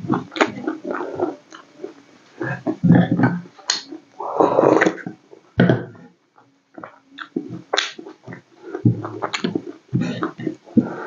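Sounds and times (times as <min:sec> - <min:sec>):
person chewing and lip-smacking: 0:06.8 - 0:11.0.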